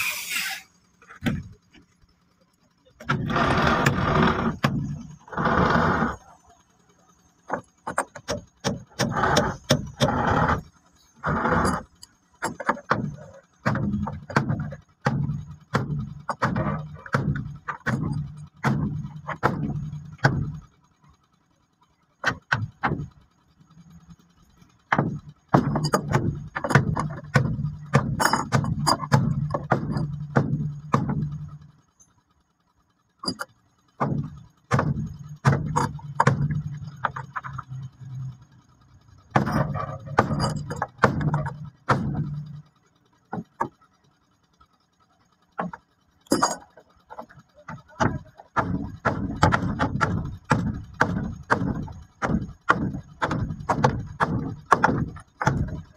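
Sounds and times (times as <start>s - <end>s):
low steady hum: 0.0s - 55.9s
hand tools tapping wood: 7.5s - 10.6s, 11.2s - 20.6s, 22.2s - 23.1s, 24.9s - 31.5s, 33.2s - 37.9s, 39.3s - 42.5s, 43.3s - 43.8s, 45.6s - 55.9s.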